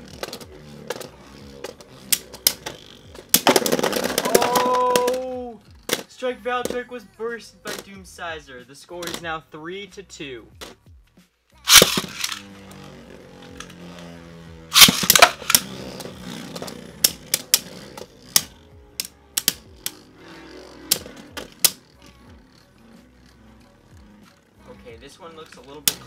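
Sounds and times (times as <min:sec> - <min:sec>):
spinning tops clacking together: 0:00.0 - 0:05.3, 0:11.6 - 0:24.6, 0:25.3 - 0:26.0
spinning tops whirring: 0:00.0 - 0:08.3, 0:11.5 - 0:26.0
launcher rip: 0:11.6 - 0:12.9, 0:13.5 - 0:21.9
plastic clatter: 0:14.8 - 0:20.0.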